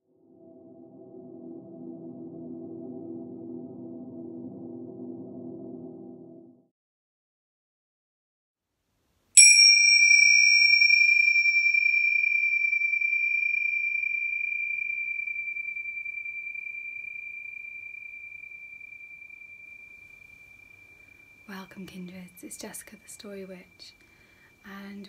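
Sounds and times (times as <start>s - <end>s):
cymbals ringing high tone: 9.4s - 22.5s.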